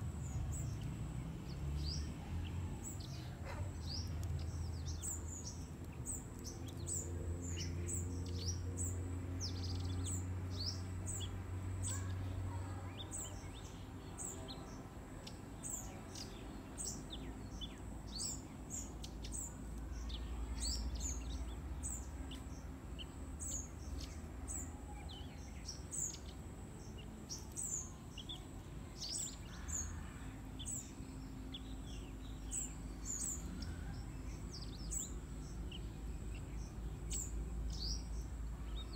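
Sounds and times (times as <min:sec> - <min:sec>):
songbirds chirping: 0:00.0 - 0:38.9.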